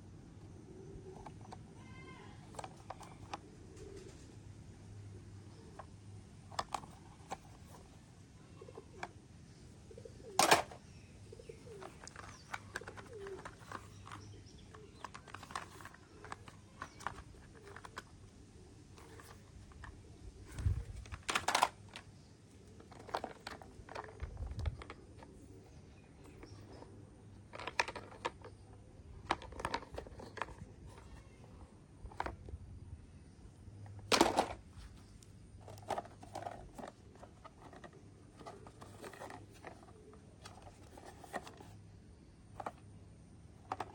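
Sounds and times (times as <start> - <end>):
plastic toy vehicles clacking: 1.1 - 3.4, 5.6 - 8.0, 10.3 - 10.9, 11.6 - 25.5, 26.2 - 32.6, 33.8 - 41.8, 42.5 - 42.9, 43.5 - 43.9.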